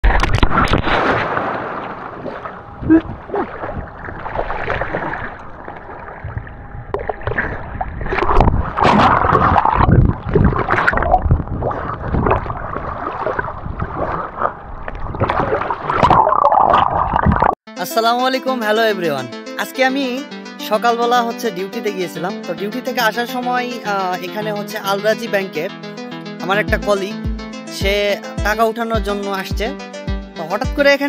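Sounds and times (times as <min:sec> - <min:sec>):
water splashing and sloshing: 0:00.0 - 0:17.6.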